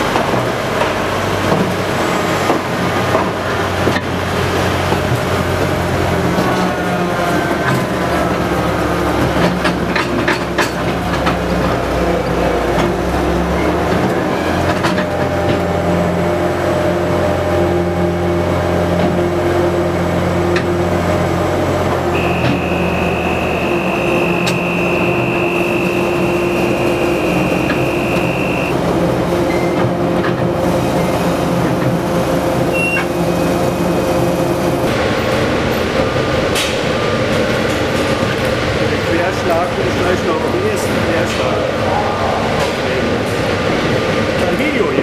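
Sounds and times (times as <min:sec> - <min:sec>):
rail vehicle engine running: 0:00.0 - 0:45.0
tunnel machinery noise: 0:00.0 - 0:45.0
high steady whine: 0:22.0 - 0:29.1.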